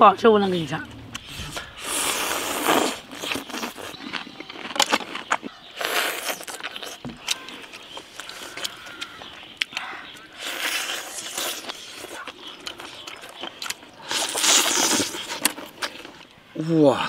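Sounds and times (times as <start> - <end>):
wet mouth noises: 1.1 - 16.3
biting and chewing food: 1.2 - 16.4.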